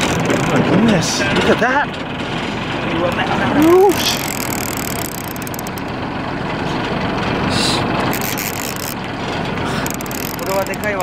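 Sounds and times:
boat engine running: 0.0 - 11.0
sea and wind noise: 8.1 - 11.0.

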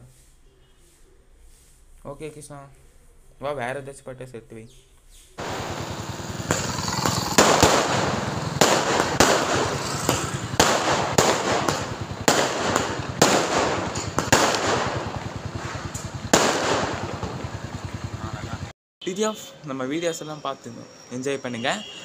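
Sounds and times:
fireworks bangs: 5.4 - 18.7
fireworks crackling: 5.4 - 18.7.

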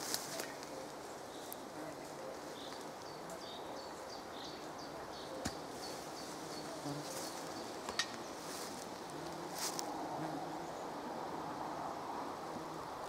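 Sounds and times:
flies buzzing: 5.4 - 13.0.

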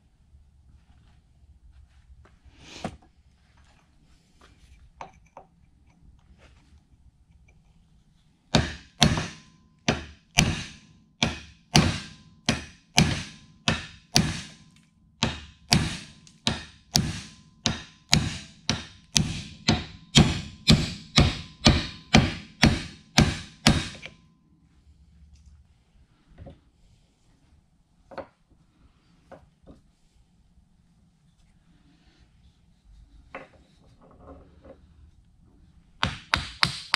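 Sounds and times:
hammer striking metal: 8.5 - 24.2, 36.0 - 36.9.

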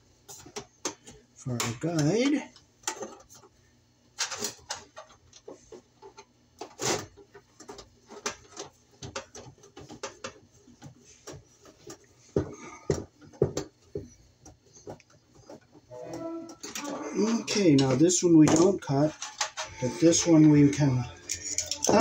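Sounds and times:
wires and screwdriver clicking in metal: 21.1 - 22.0.

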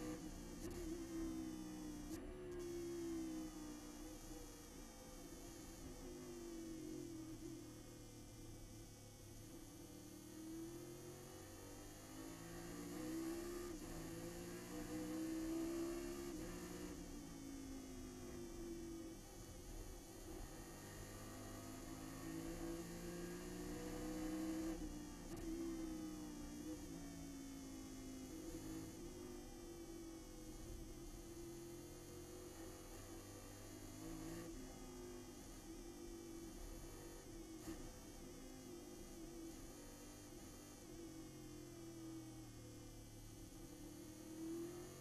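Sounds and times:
muffled race car engine drone: 0.0 - 45.0.

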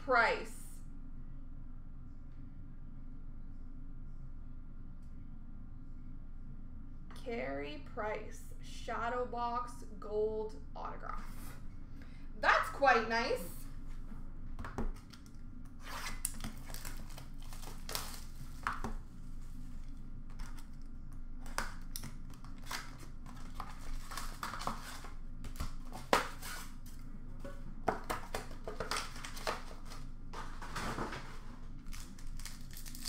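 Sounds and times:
cards and packaging rustling: 16.1 - 19.0, 19.8 - 27.0, 27.9 - 33.0.

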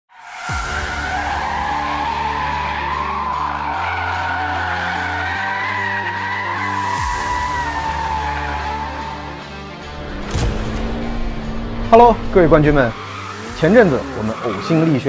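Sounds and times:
tyres squealing: 0.8 - 9.4, 12.5 - 15.0.

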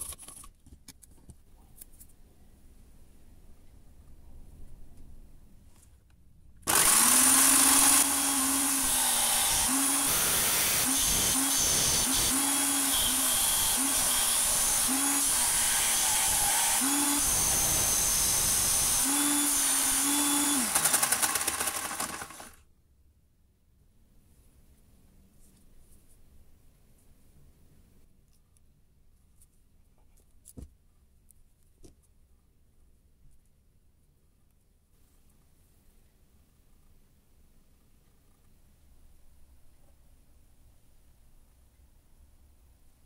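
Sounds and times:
disc sander grinding metal: 6.7 - 22.5
sander motor hum: 6.7 - 22.6.

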